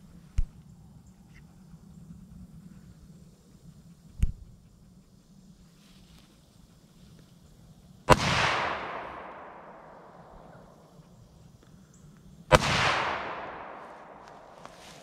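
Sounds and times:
rifle shots with echo: 8.1s - 10.8s, 12.5s - 15.0s.

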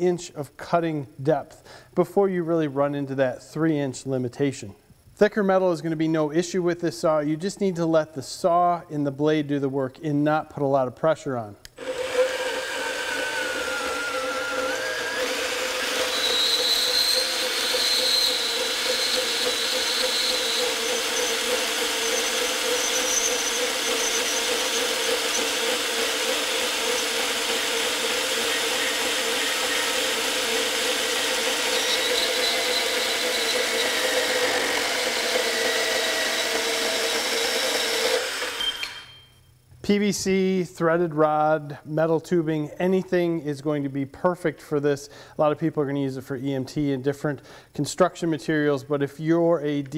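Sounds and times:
band saw cutting metal: 11.8s - 39.2s.

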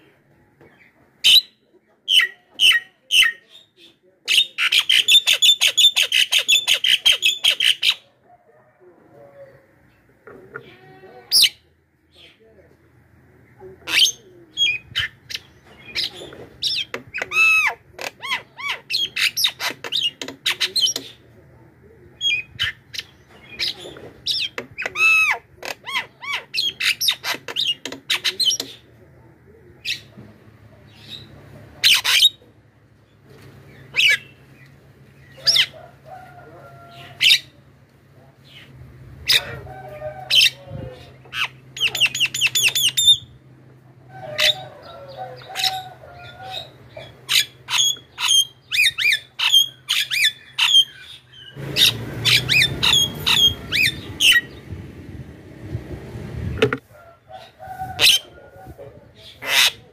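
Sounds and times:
myna shrieking and chirping: 45.4s - 54.5s.

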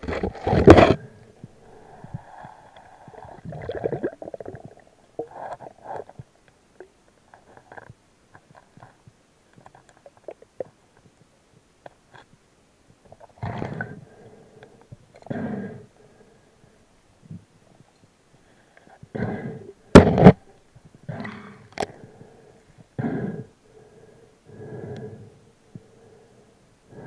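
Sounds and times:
underwater gurgling: 0.0s - 7.0s, 13.0s - 14.0s.

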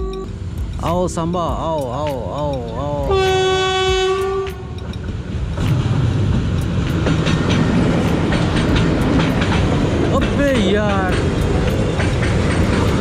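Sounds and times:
freight train wheels clattering: 0.0s - 13.0s
train horn blast: 3.1s - 4.8s.

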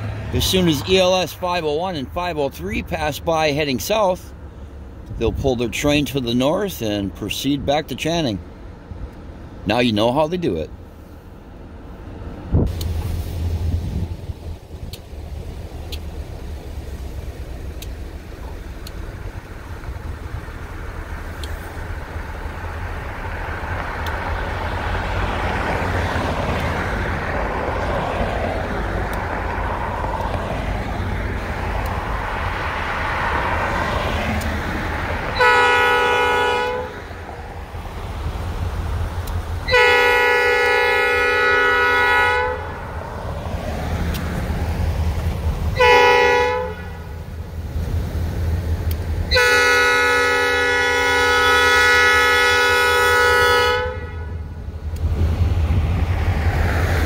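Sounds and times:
steady low rumble: 0.0s - 36.2s, 36.8s - 41.3s, 54.2s - 57.0s
vehicle passing on road: 0.0s - 57.0s
locomotive horn chord: 35.3s - 37.1s, 39.6s - 42.9s, 45.8s - 47.2s, 49.3s - 54.5s.

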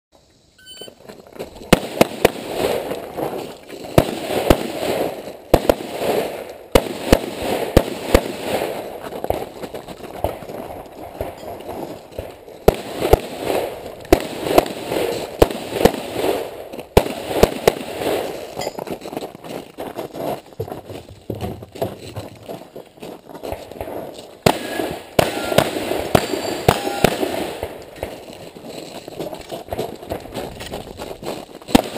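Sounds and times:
gunshots with ringing echo: 24.4s - 28.1s.

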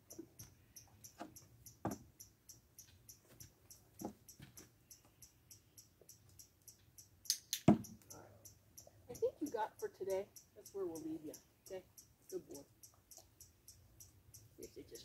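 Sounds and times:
steady high ticking: 0.0s - 15.0s
horse hoof thudding on dirt: 1.2s - 2.1s.

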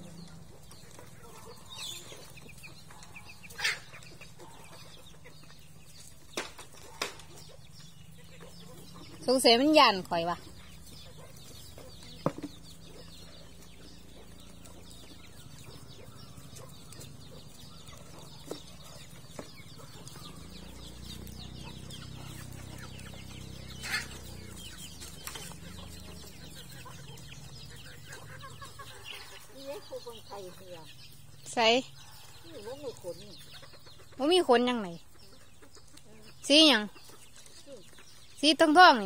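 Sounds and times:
chickens clucking softly: 0.0s - 39.0s.

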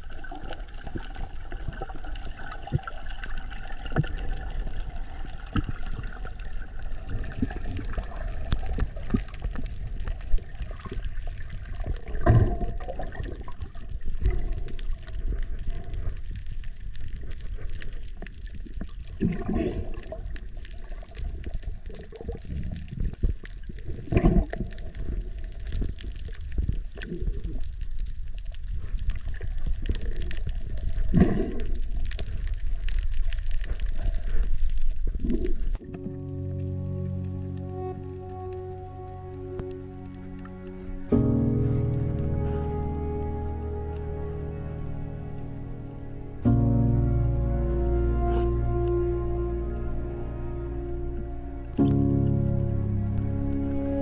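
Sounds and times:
seawater sloshing and gurgling: 0.0s - 27.6s, 29.1s - 32.7s.

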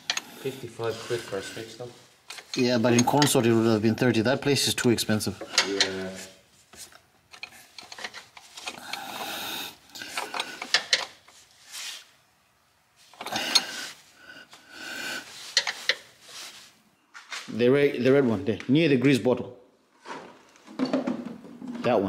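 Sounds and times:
scraping and rubbing: 0.7s - 4.0s, 10.0s - 12.2s, 15.0s - 17.6s.

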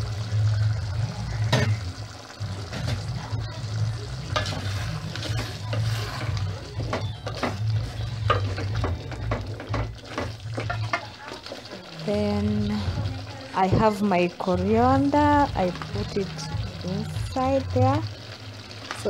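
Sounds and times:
spoon scraping metal pot: 4.3s - 11.8s.

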